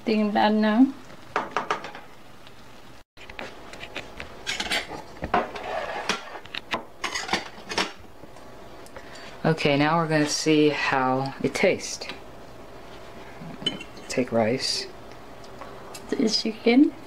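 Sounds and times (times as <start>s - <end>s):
rice paddle scraping a skillet: 3.3s - 7.8s
dishes and utensils clinking: 4.4s - 6.4s, 7.0s - 8.0s, 13.6s - 14.2s.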